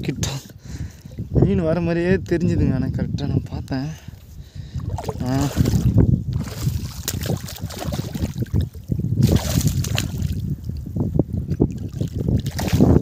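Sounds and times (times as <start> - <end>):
wind rumbling on microphone: 0.0 - 13.0
small waves lapping: 4.6 - 10.4.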